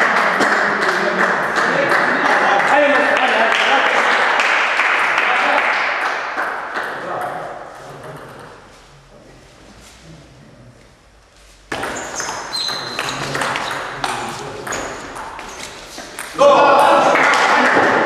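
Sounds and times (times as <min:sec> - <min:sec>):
short high squeaks: 0:11.9 - 0:13.8.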